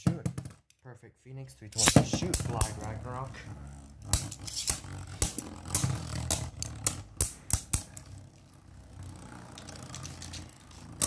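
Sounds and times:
spinning tops whirring: 1.6 - 11.0
spinning tops clacking together: 1.7 - 3.0, 4.0 - 8.2, 9.4 - 11.0.

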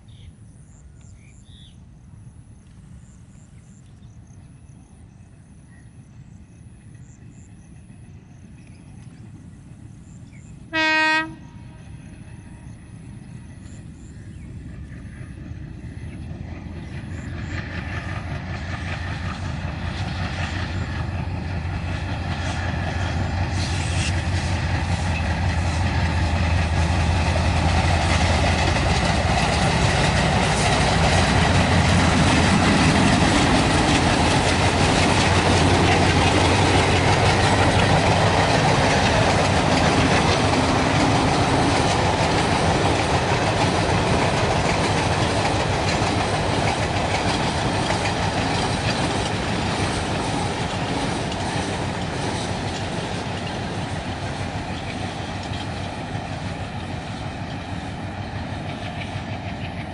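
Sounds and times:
diesel locomotive chugging: 2.5 - 59.9
train wheels clattering on rails: 13.0 - 59.9.

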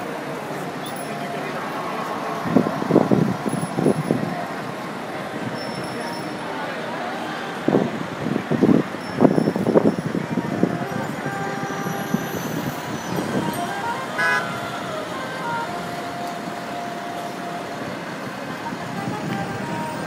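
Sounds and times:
city street traffic: 0.0 - 20.0
car horns: 8.6 - 20.0.

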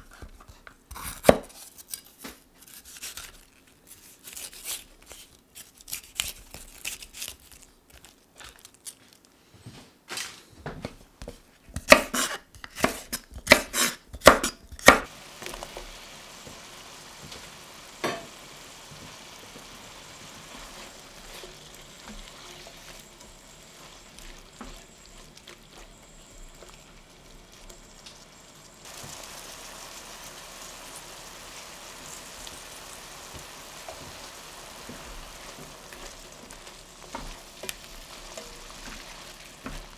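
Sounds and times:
pan sizzling: 13.5 - 39.9.

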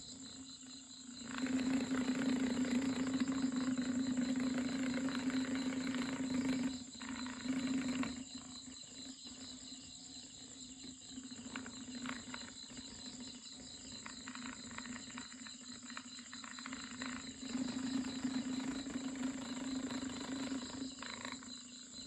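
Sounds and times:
small motor buzzing hum: 0.0 - 22.0.

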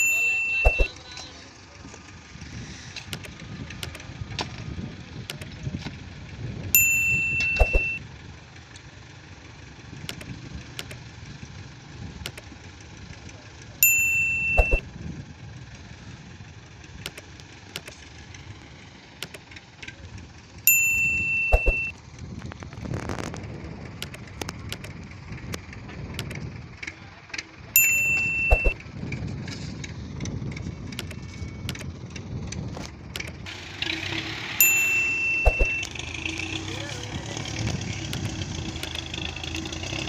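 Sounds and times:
bright held tone: 0.0 - 1.0, 6.8 - 8.0, 13.8 - 14.8, 20.7 - 21.9, 27.8 - 28.8, 34.6 - 36.0
sharp click: 0.6 - 0.9, 3.1 - 4.0, 5.3 - 5.6, 7.4 - 8.0, 10.1 - 11.0, 12.3 - 12.5, 14.4 - 14.8, 17.0 - 18.0, 19.2 - 19.4, 21.5 - 21.9, 24.0 - 25.0, 26.2 - 26.4, 28.0 - 28.8, 31.0 - 31.9, 33.2 - 33.4, 35.4 - 35.9.

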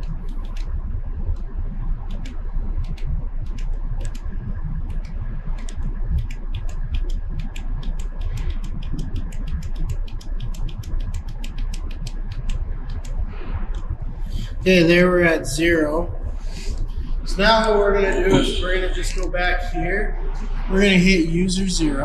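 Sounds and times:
rapid sharp clicks: 0.0 - 14.6
low machine hum: 0.0 - 22.0.

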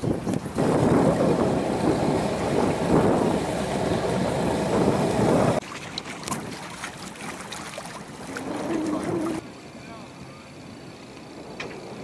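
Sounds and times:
wind buffeting microphone: 0.0 - 5.6.

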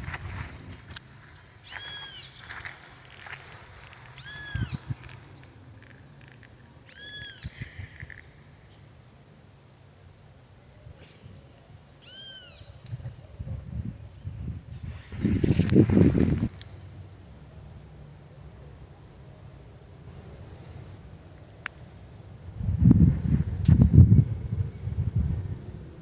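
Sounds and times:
animal calling: 1.6 - 2.6, 4.0 - 8.2, 12.0 - 12.8.

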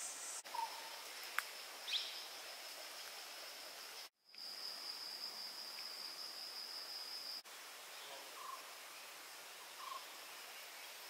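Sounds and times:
high-pitched insect trill: 0.0 - 7.5
forest background hiss: 0.0 - 11.0.

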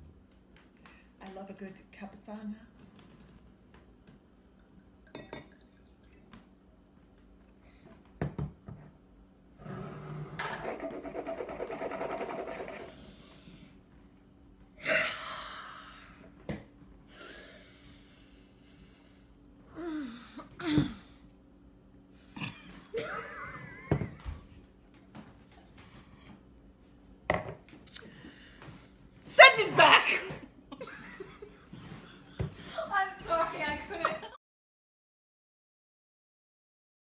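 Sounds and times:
woman laughing: 22.4 - 24.4, 29.8 - 32.9, 33.6 - 34.4.

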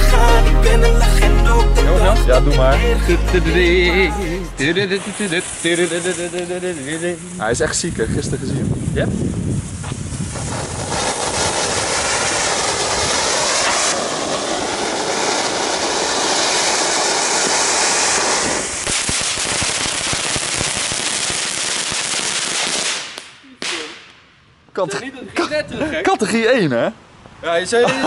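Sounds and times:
firework crackling: 3.6 - 24.4
firework fountain hissing: 4.5 - 24.0.

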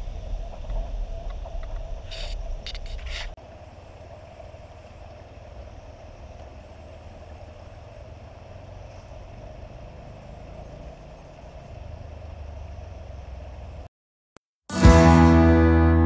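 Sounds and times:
low fluttering rumble: 0.0 - 10.0.

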